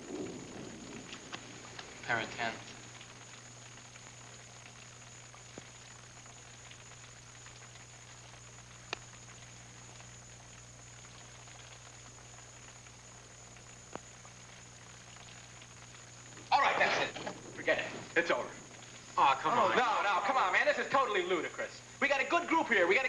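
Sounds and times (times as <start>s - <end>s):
low hum: 0.0s - 20.5s
tape hiss: 0.0s - 23.0s
faint sharp clicks: 5.5s - 10.1s.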